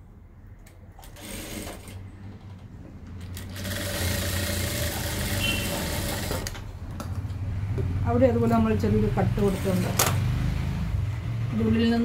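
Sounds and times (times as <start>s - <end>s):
sewing machine stitching: 1.0s - 2.4s, 3.3s - 6.7s.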